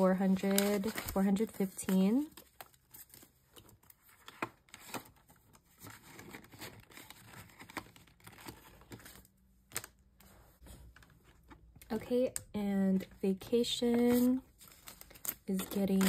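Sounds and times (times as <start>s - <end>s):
plastic envelope crinkling: 0.0s - 10.0s, 13.8s - 16.0s
banknotes rustling: 0.0s - 11.8s, 13.5s - 16.0s.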